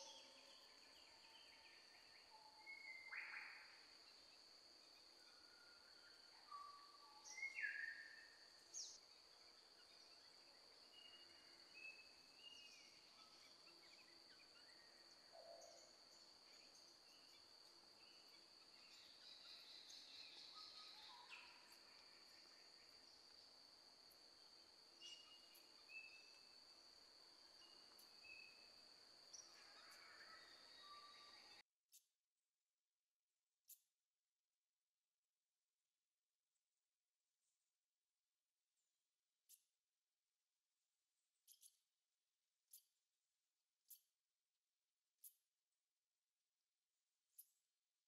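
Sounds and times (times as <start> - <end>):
bird chirps: 0.0 - 23.2, 25.0 - 26.6.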